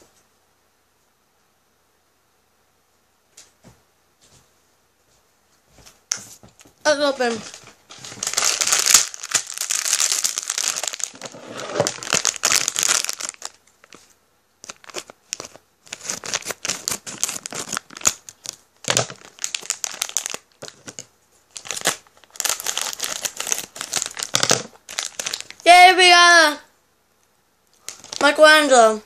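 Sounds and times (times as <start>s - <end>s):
plastic wrapper crinkling and tearing: 6.9s - 25.7s, 27.7s - 28.5s.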